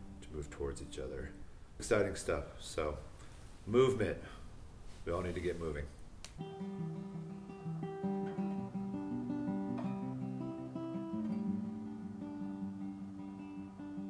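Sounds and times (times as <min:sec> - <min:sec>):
acoustic guitar playing: 0:00.0 - 0:01.6, 0:06.4 - 0:14.0.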